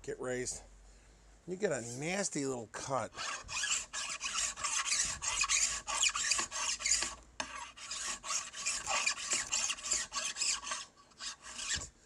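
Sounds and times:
hand file rasping on steel: 3.1s - 11.9s.

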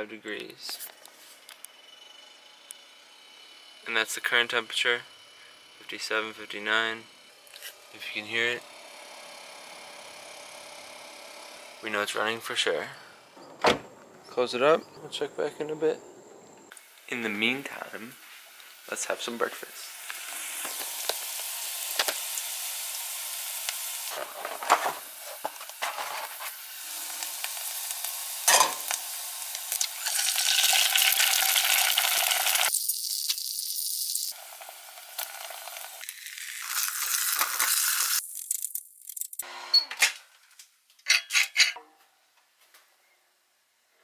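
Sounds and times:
bacon and egg sizzling in pan: 19.6s - 24.4s, 25.0s - 39.0s
dishes clinking: 28.5s - 28.8s, 41.0s - 42.0s.

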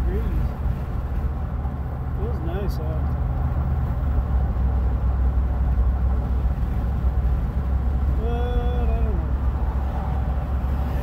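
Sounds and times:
car engine and road noise: 0.0s - 11.0s.

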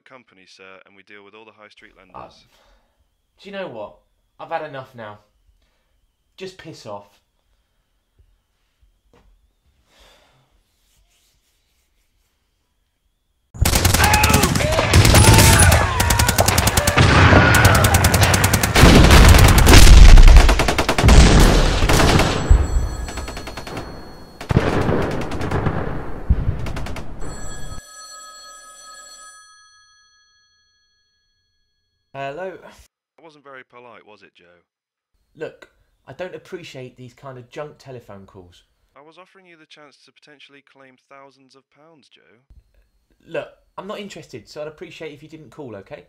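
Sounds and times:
machine-gun fire with booms: 13.6s - 27.8s
mobile phone ringtone: 22.2s - 24.6s, 27.2s - 32.1s.

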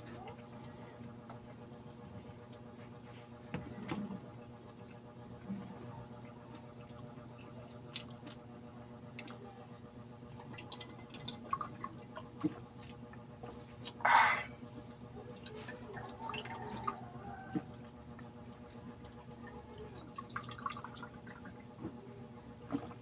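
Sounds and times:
breathy sound: 14.0s - 14.6s.

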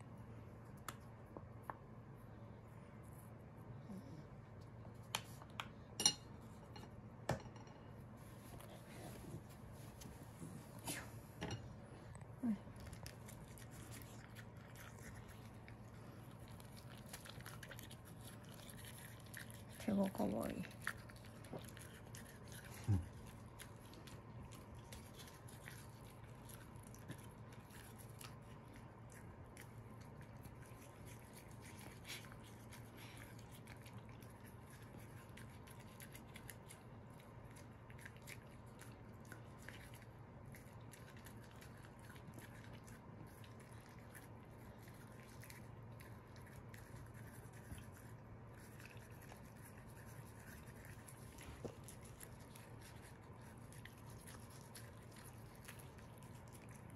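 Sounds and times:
steady low hum: 0.0s - 56.9s
toothbrush brushing dog's teeth: 12.5s - 56.9s.

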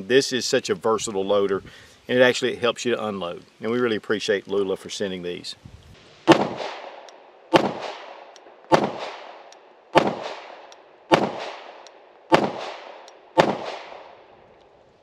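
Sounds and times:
pistol gunshots with echo: 6.2s - 14.3s.

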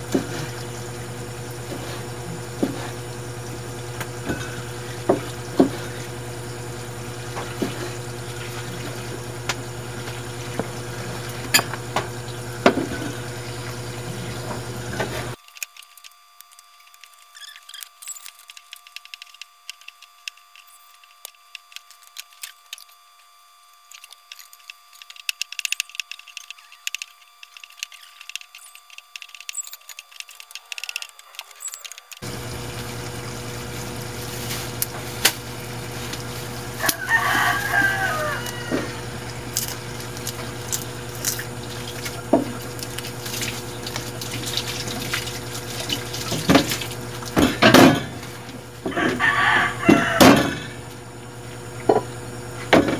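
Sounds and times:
rooster crowing: 36.6s - 39.6s, 48.8s - 50.8s.

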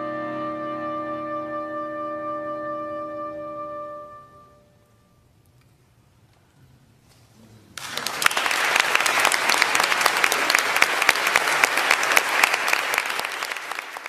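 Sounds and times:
audience applauding: 7.8s - 14.0s.

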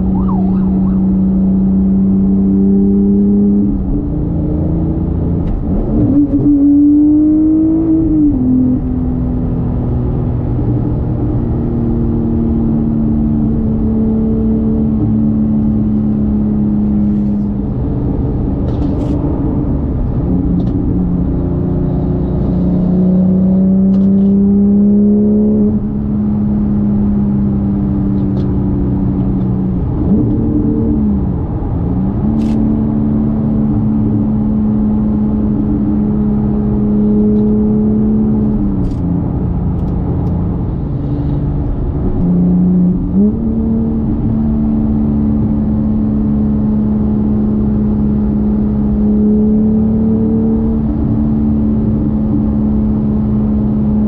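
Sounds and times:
car engine running: 0.0s - 6.5s
road noise: 0.0s - 54.0s.

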